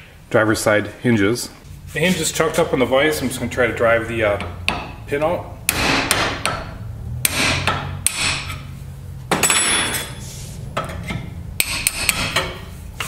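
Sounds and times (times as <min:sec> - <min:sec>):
hammer striking steel punch: 0:05.7 - 0:08.5, 0:11.6 - 0:12.6.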